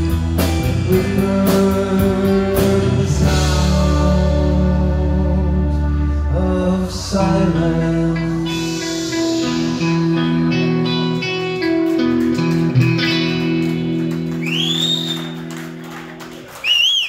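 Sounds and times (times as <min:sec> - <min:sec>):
live band playing: 0:00.0 - 0:16.6
loud whistle: 0:14.4 - 0:15.5, 0:16.6 - 0:17.0.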